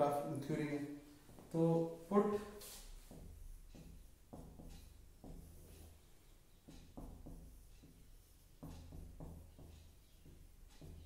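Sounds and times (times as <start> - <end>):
marker scratching on whiteboard: 2.4 - 11.0
marker tapping whiteboard: 2.6 - 11.0.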